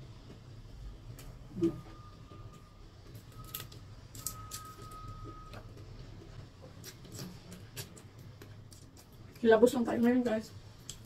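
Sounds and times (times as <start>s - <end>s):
electronic timer beeping: 4.2s - 5.6s.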